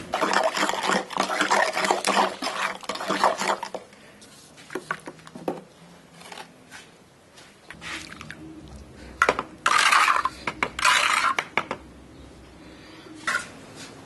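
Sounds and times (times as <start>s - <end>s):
metal scoop scraping: 0.0s - 3.8s, 9.6s - 11.5s.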